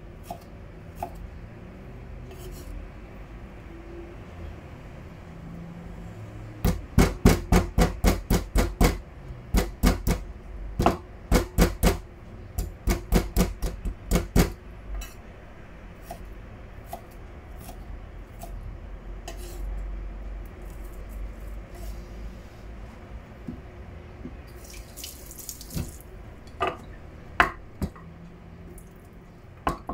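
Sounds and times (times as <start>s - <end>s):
knife chopping on cutting board: 6.6s - 10.2s, 12.6s - 15.2s.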